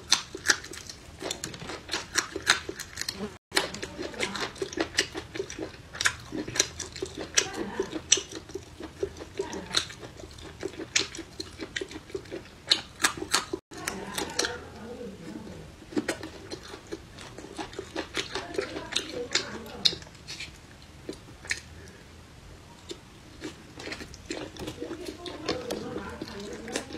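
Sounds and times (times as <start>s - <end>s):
crunchy chewing of peppers: 0.0s - 26.9s.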